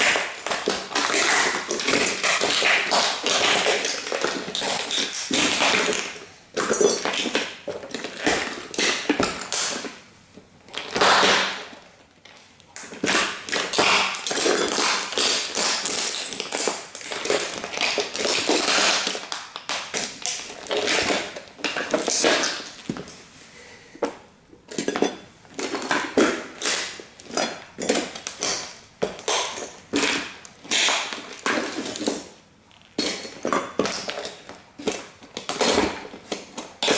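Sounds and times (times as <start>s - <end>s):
boots stomping on plastic fragments: 0.0s - 10.0s, 10.7s - 11.8s, 12.8s - 23.2s.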